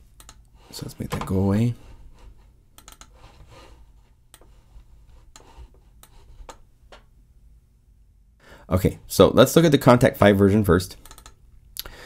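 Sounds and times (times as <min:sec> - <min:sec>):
computer mouse clicks: 0:00.2 - 0:00.5, 0:02.8 - 0:03.2, 0:11.0 - 0:11.4.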